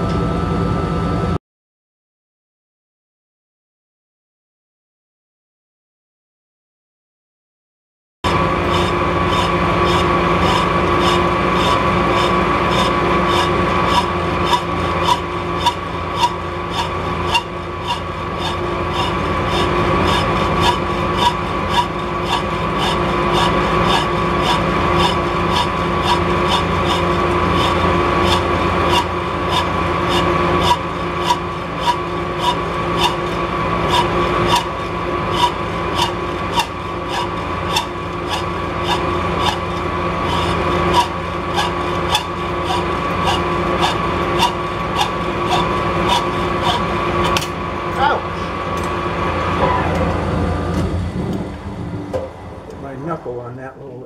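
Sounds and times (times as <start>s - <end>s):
machine hum: 0.0s - 1.4s, 8.2s - 54.0s
hacksaw rasping on metal: 8.3s - 47.6s.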